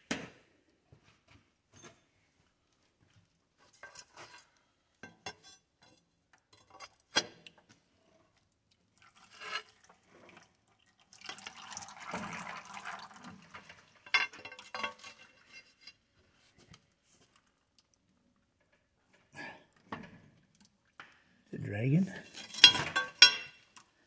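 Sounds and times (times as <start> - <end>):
metal tools clanking: 22.2 - 23.6.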